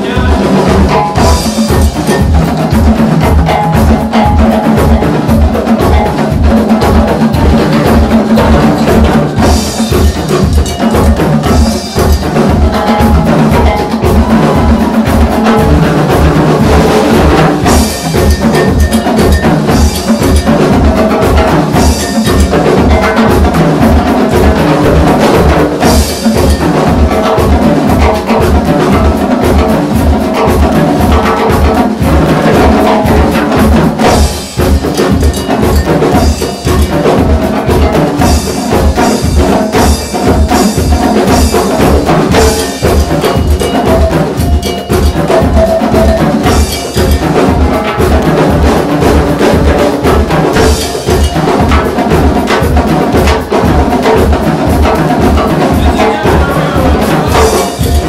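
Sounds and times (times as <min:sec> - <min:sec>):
cowbell: 0:00.0 - 0:58.0
live band percussion music: 0:00.0 - 0:58.0.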